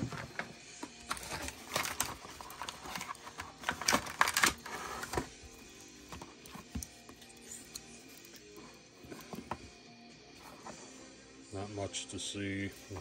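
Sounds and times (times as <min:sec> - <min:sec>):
plastic packaging rustling: 0:01.0 - 0:05.3.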